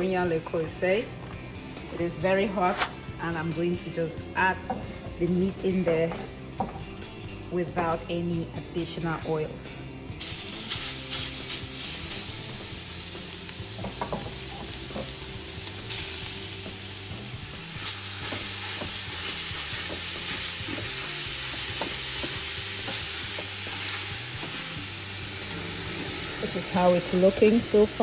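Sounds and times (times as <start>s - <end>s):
meat sizzling in a pot: 10.2s - 28.0s.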